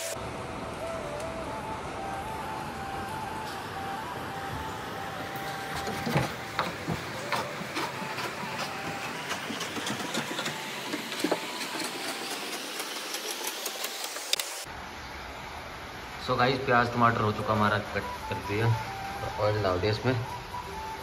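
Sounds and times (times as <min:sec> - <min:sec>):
steady hiss: 0:00.0 - 0:05.6.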